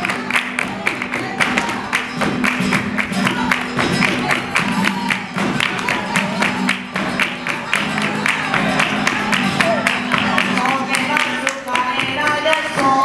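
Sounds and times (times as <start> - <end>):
flamenco guitars strumming: 0.0 - 13.0
sharp hand claps: 0.0 - 13.0.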